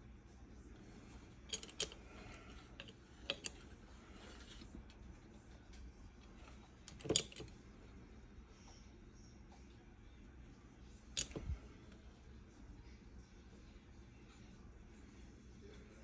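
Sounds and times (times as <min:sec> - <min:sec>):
plastic parts clicking: 0:01.5 - 0:02.0, 0:02.7 - 0:03.6, 0:06.9 - 0:07.5, 0:11.2 - 0:11.6.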